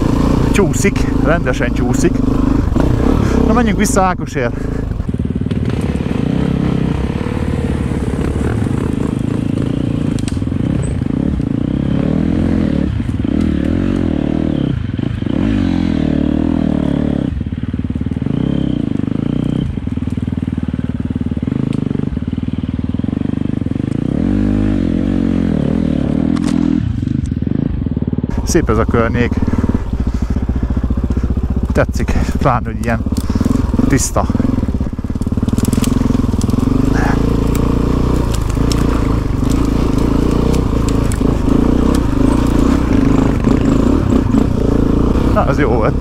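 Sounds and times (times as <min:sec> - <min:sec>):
motorcycle engine revving: 0:00.0 - 0:46.0.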